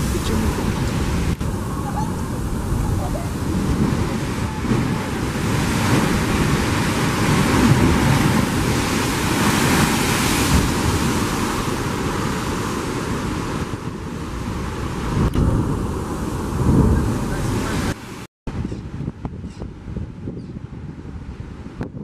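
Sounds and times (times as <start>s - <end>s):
sea surf rushing: 0.0s - 18.3s
wind buffeting microphone: 0.0s - 22.0s.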